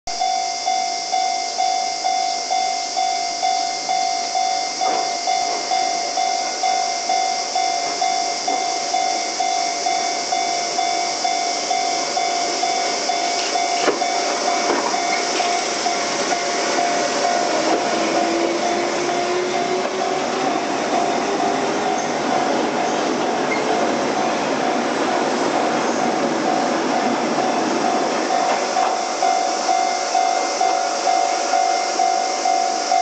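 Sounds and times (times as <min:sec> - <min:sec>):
level crossing bell ringing: 0:00.1 - 0:23.1, 0:25.6 - 0:33.0
train passing: 0:00.2 - 0:33.0
train wheels knocking over rail joints: 0:12.9 - 0:24.2, 0:24.9 - 0:29.7.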